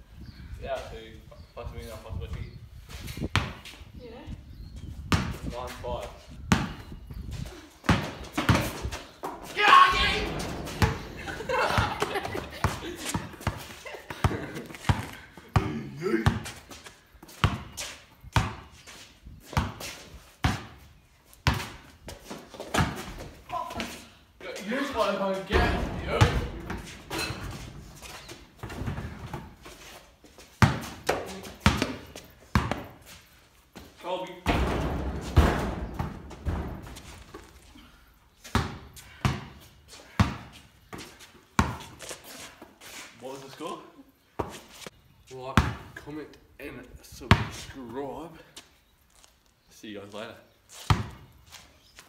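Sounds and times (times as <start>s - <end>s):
basketball bouncing in metal shed: 6.5s - 6.9s, 7.8s - 16.6s, 20.4s - 20.8s, 25.4s - 29.6s, 30.6s - 33.0s, 34.4s - 37.6s, 38.4s - 42.0s, 45.5s - 46.0s, 47.2s - 47.7s, 50.9s - 51.4s
basketball bouncing with metallic echo: 9.9s - 15.0s, 25.5s - 27.8s, 34.4s - 37.0s.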